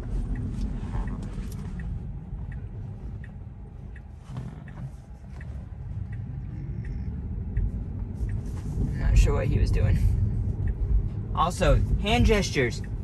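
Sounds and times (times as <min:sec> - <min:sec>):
road and tyre rumble: 0:00.0 - 0:13.0
turn signal ticking: 0:00.0 - 0:13.0.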